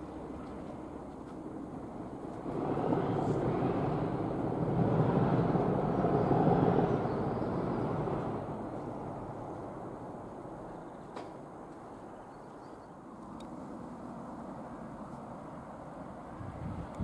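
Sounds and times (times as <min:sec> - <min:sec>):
passing vehicle rumble: 0:00.0 - 0:11.5.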